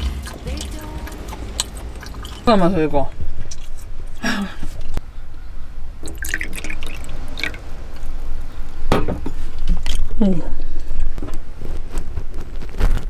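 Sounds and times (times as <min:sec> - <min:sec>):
low steady rumble: 0:00.0 - 0:11.2
liquid pouring into a cup: 0:06.0 - 0:07.7.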